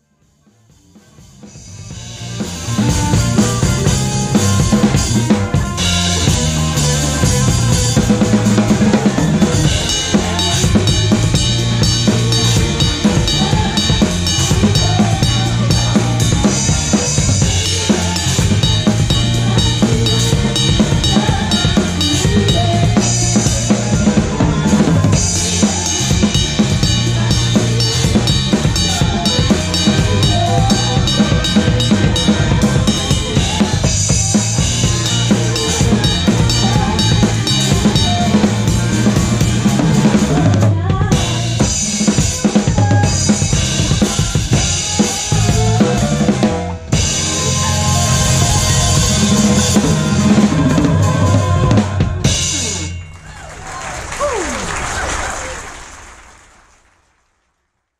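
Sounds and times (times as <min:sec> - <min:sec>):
live band playing: 0:00.3 - 0:55.5
drum kit playing: 0:00.5 - 0:54.7
cymbals ringing: 0:02.0 - 0:23.8, 0:25.1 - 0:40.4, 0:46.9 - 0:53.8.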